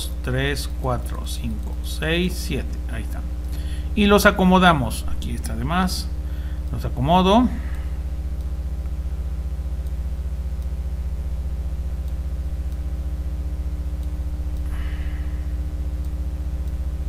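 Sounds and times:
low electrical hum: 0.0 - 17.0
faint ticks: 8.3 - 9.0, 9.8 - 10.8, 13.9 - 14.9, 15.6 - 17.0.

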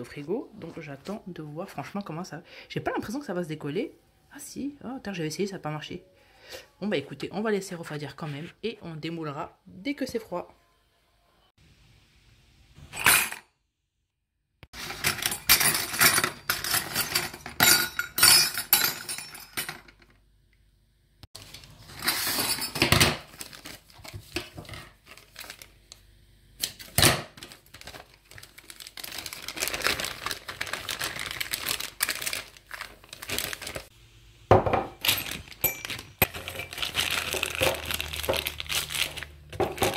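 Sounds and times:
plastic bag rustling: 14.8 - 15.3, 21.4 - 26.0, 26.8 - 33.9, 34.8 - 39.9
metal nozzles clinking together: 35.0 - 36.8.

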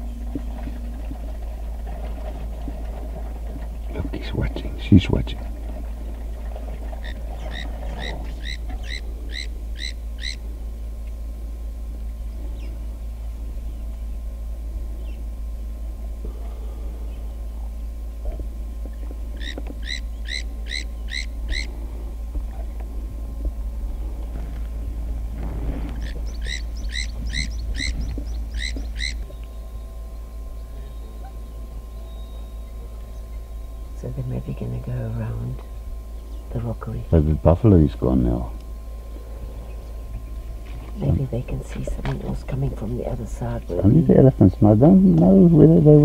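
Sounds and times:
steady low rumble: 0.0 - 46.0
bird calling repeated notes: 6.8 - 10.5, 19.0 - 21.8, 26.0 - 34.1.

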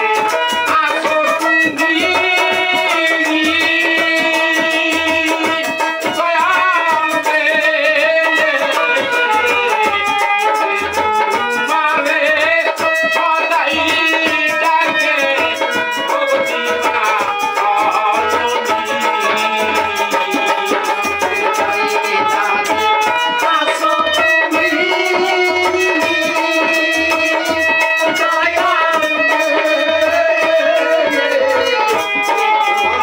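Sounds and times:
fast rattling percussion: 0.0 - 33.0
harmonium playing: 0.0 - 33.0
man singing: 0.0 - 33.0.

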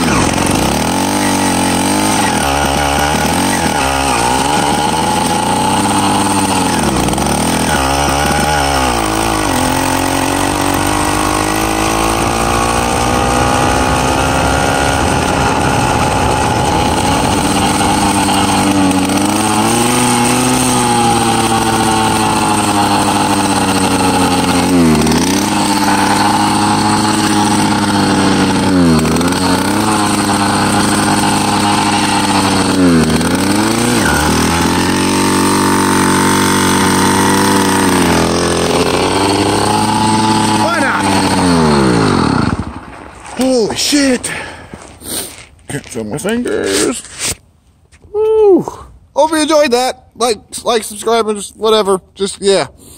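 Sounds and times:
two-stroke engine running: 0.0 - 46.4.

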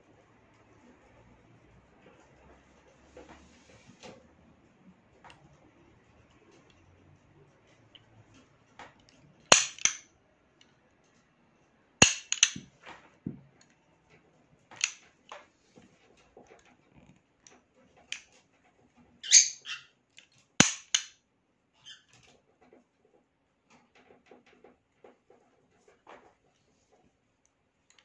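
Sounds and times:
pistol slide metallic clacks: 9.5 - 10.1, 12.0 - 12.7, 20.6 - 21.2.

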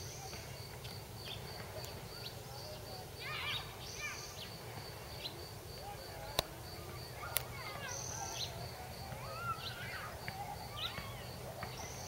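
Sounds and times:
sharp clicks: 6.3 - 6.6, 7.3 - 7.5.

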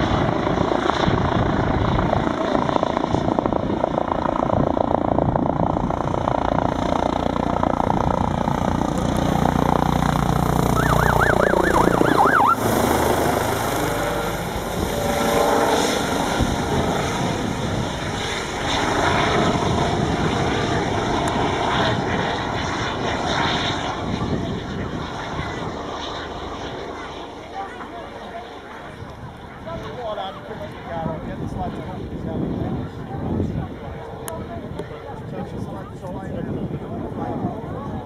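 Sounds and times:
helicopter rotor beating: 0.0 - 38.0
turbine whine: 3.4 - 26.7.

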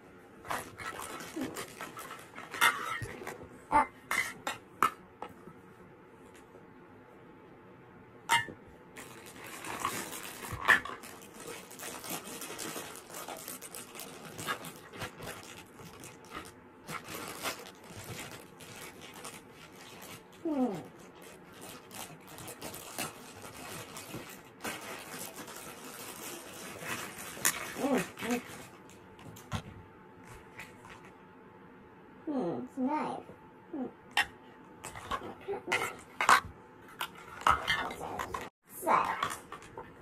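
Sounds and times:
plastic toy food rustling and clicking: 0.4 - 3.4, 9.0 - 29.7, 34.8 - 40.0.

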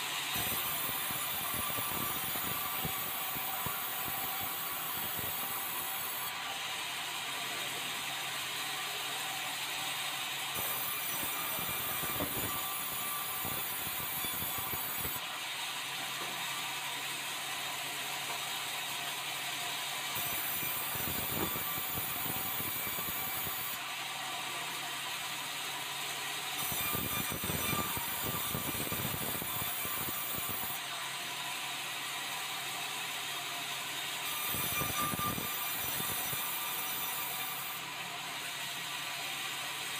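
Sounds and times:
sawmill saw ripping boards: 34.3 - 37.8.

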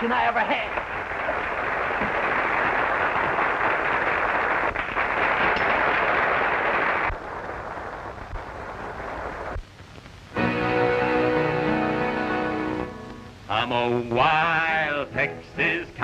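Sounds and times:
soundtrack hiss: 0.0 - 16.0
audience applauding: 0.1 - 9.6.

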